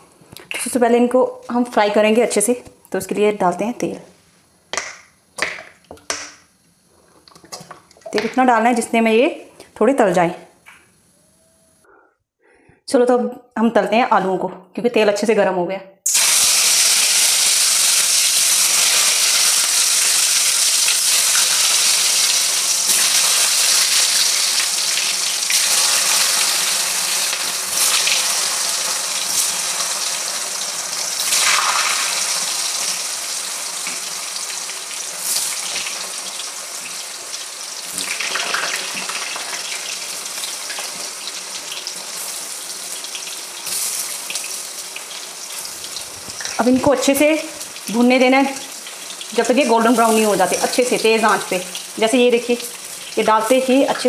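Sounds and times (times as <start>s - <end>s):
potatoes sizzling in oil: 16.1s - 54.0s.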